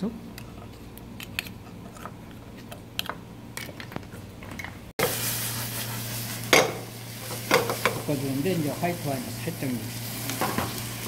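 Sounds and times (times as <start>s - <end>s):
oysters sizzling in frying pan: 5.0s - 11.0s.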